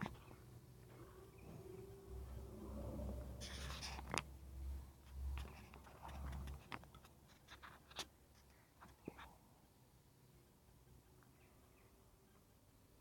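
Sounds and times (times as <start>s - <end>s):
low rumble: 1.4s - 3.5s.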